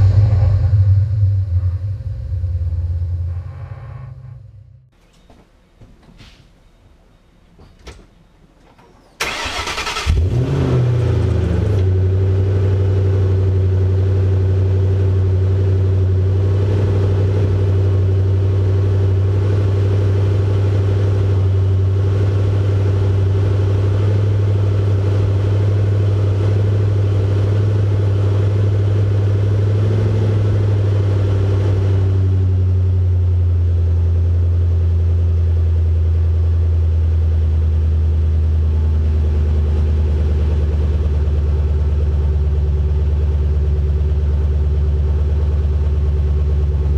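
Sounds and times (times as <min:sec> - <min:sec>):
car engine revving and idling: 0:00.0 - 0:04.9, 0:09.3 - 0:46.9
engine starter cranking: 0:09.2 - 0:10.4.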